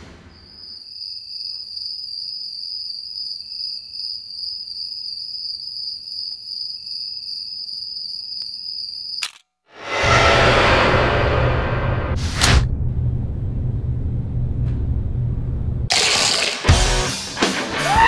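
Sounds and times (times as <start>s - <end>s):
crickets chirping: 0.3s - 9.3s.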